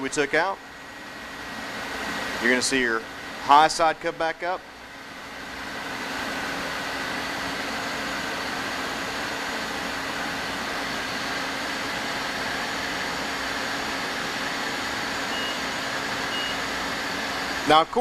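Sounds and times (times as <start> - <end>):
hissing drone of refrigerant charging: 0.0 - 18.0
short high beep: 15.3 - 16.6.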